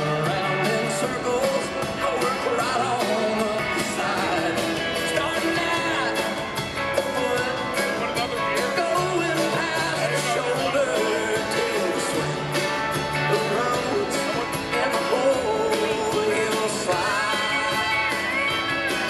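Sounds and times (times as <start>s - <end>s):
live country band playing: 0.0s - 19.0s.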